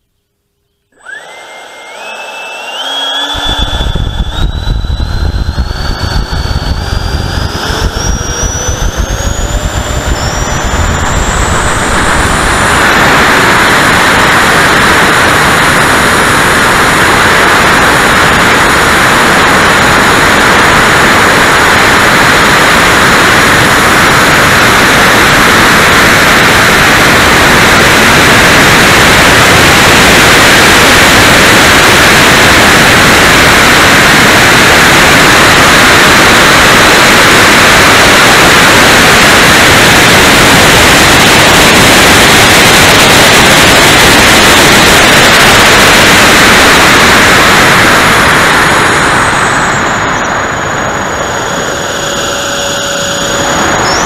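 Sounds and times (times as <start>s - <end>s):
electric ducted fans whining: 0.5s - 54.0s
rush of fans and airflow: 0.9s - 54.0s
low rumble: 1.0s - 30.2s.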